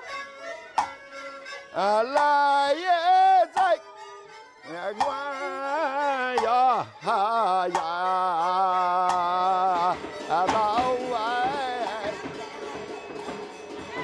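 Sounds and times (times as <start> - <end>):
sharp percussion clicks: 0.7 - 3.8, 4.8 - 14.0
man singing operatic chant: 1.7 - 3.9, 4.6 - 12.6.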